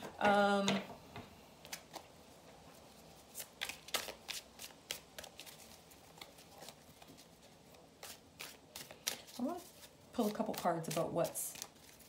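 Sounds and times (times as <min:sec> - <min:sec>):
cards being shuffled: 0:03.2 - 0:12.0.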